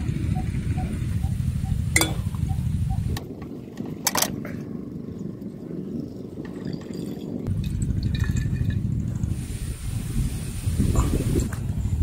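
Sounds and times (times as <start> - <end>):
steady low rumble: 0.0 - 6.4, 7.4 - 12.0
fuel trickling through tube: 6.9 - 11.9.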